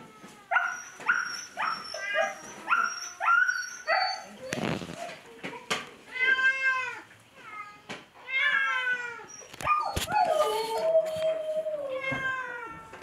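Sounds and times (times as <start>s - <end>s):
cats meowing: 0.0s - 5.2s, 6.1s - 13.0s.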